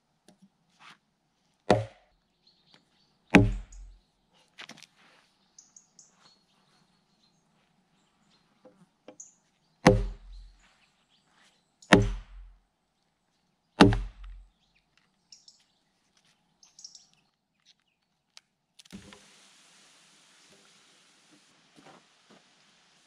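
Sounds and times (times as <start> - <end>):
wooden mallet striking an axe: 1.7 - 2.1, 3.3 - 3.9, 9.8 - 10.6, 11.9 - 12.5, 13.8 - 14.4.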